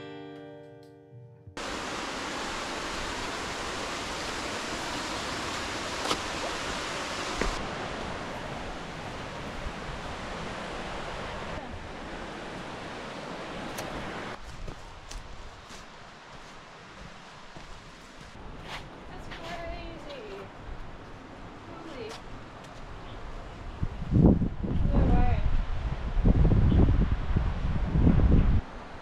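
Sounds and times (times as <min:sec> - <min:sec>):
waterfall rushing: 0:01.6 - 0:14.4.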